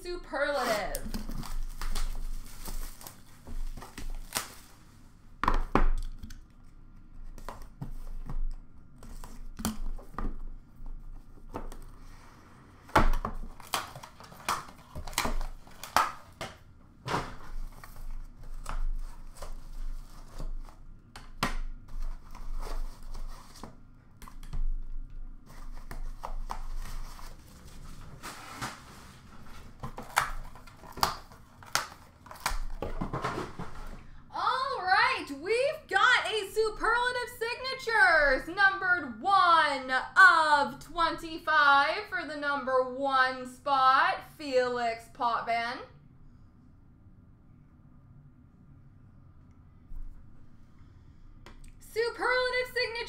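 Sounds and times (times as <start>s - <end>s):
packaging crinkling and tearing: 0.6s - 5.0s, 13.4s - 16.4s, 25.5s - 33.0s.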